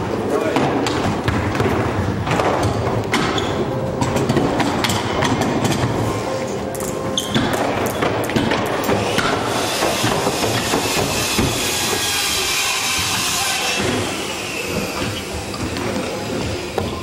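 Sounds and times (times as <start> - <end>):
scooter wheels rolling on wood ramp: 7.1 - 17.0.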